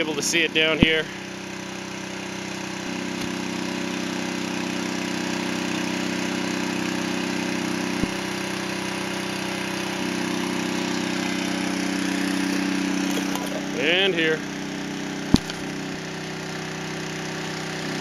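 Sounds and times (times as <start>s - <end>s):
small engine running: 0.0s - 18.0s.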